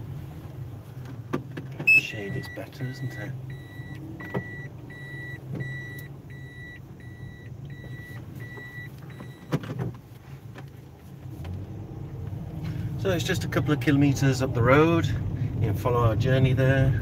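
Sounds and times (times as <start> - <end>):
reverse warning beeper: 1.9 - 9.5.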